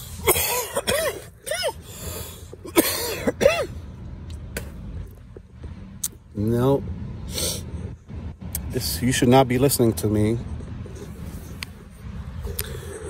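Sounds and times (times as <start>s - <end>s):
man coughing harshly: 0.2s - 1.9s, 2.6s - 3.8s.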